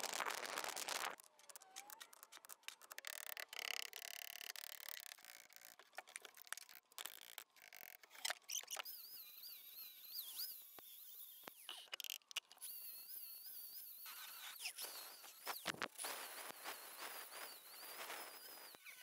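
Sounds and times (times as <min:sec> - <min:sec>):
angle grinder whining: 0:07.1 - 0:19.0.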